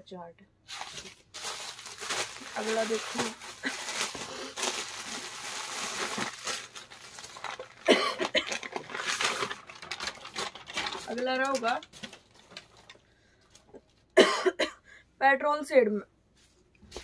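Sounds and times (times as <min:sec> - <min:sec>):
plastic packaging crinkling: 0:00.6 - 0:13.8
cloth rustling: 0:00.7 - 0:13.0.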